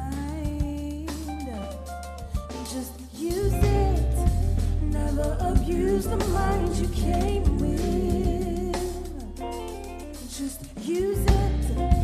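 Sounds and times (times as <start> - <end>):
live band music: 0.0 - 12.0
woman singing into a microphone: 0.0 - 12.0
heavy bass: 3.3 - 12.0.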